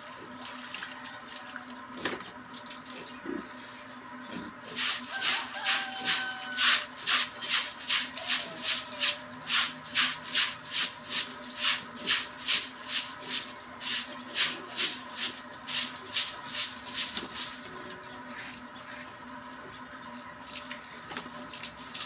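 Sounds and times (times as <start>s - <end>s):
stiff broom scrubbing wet concrete: 4.6s - 19.1s.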